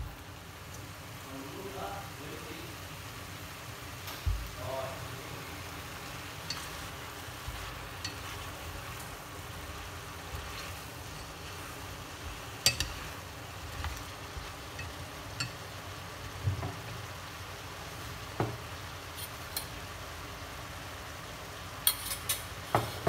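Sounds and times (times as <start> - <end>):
food sizzling in a pot: 0.0 - 23.0
chopsticks clicking against a pot: 6.4 - 11.7, 12.4 - 15.7.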